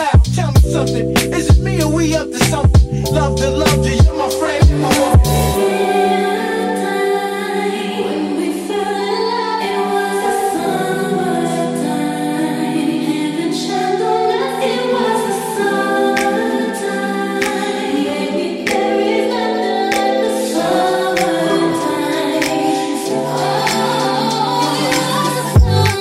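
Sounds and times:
layered chords with singing: 0.0s - 26.0s.

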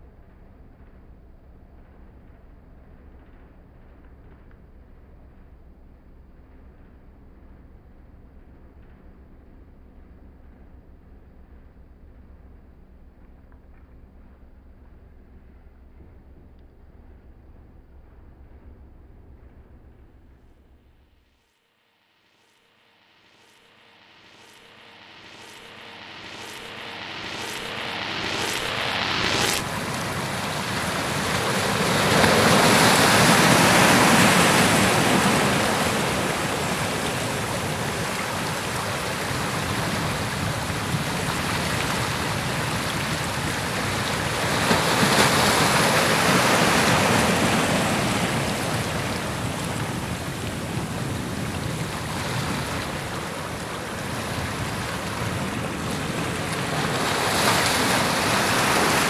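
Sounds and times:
surf washing on rocks: 29.3s - 59.0s.

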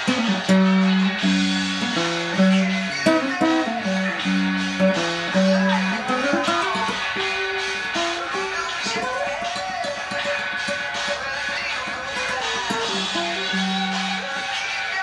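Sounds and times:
fingerpicked classical guitar: 0.0s - 14.9s.

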